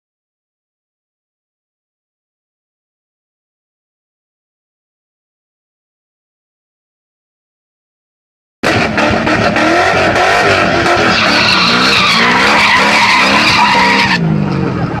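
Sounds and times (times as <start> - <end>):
engine revving hard: 8.6 - 14.8
tyres squealing: 9.6 - 14.2.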